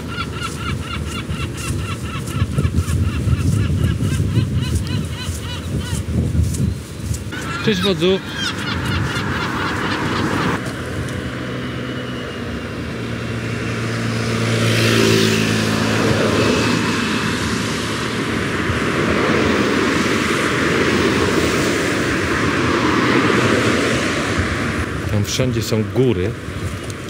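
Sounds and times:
cars passing with tyre noise: 0:00.0 - 0:27.0
low engine hum: 0:08.3 - 0:25.2.

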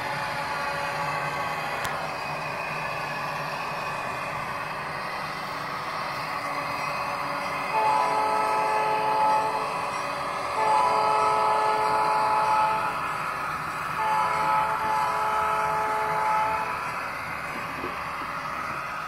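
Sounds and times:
diesel engine sound: 0:00.0 - 0:19.0
locomotive air horn from small speaker: 0:07.7 - 0:09.8, 0:10.5 - 0:13.0, 0:14.0 - 0:16.8.

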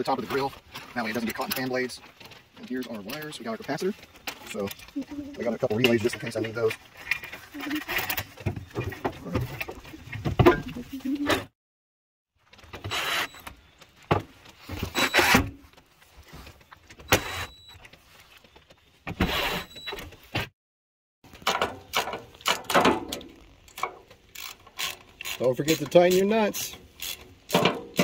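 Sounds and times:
hand ratchet clicking: 0:23.7 - 0:28.0.

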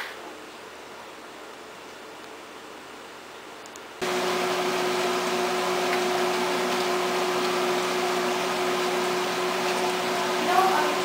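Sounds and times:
kitchen appliance fan whirring: 0:04.0 - 0:11.0.

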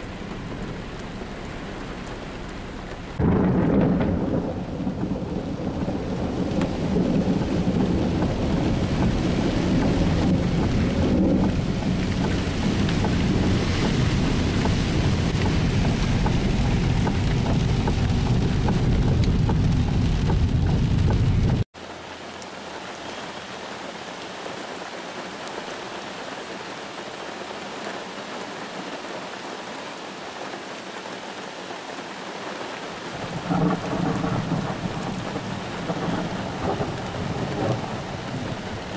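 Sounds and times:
deep steady rumble: 0:00.0 - 0:21.7
heavy rain drumming on car roof: 0:00.0 - 0:22.1, 0:27.2 - 0:38.9.

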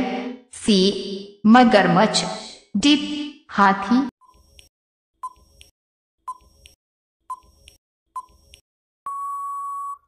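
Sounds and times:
long steady beep: 0:09.1 - 0:10.0.

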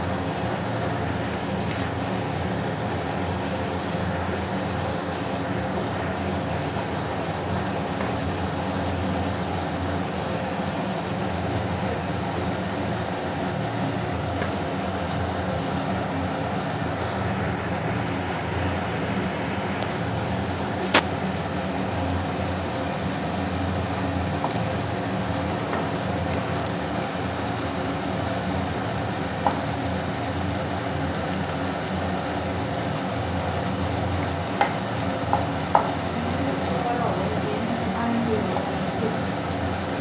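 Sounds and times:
frying pan hum and hiss: 0:00.0 - 0:40.0
sharp tap on pan: 0:34.6 - 0:36.0.

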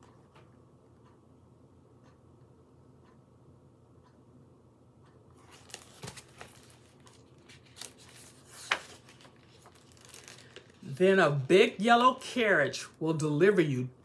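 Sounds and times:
book pages rustling: 0:05.4 - 0:11.5.

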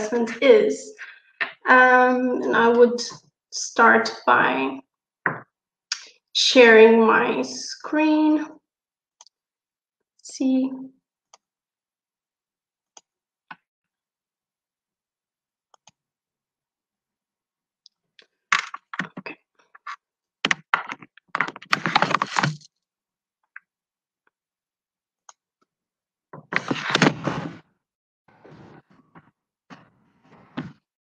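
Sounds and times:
knocking and clatter at desk: 0:20.4 - 0:22.6.

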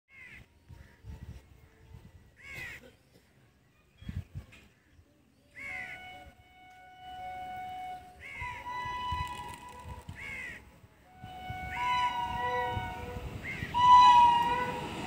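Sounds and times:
crows cawing: 0:10.2 - 0:10.6.

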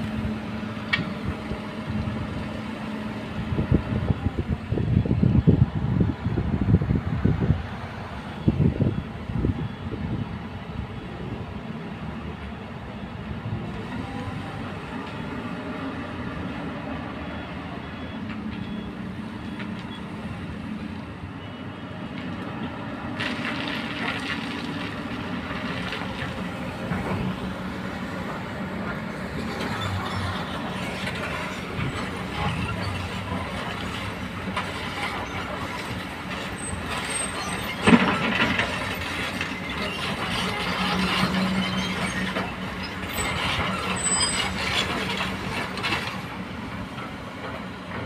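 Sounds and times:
diesel engines droning: 0:00.0 - 0:48.0.

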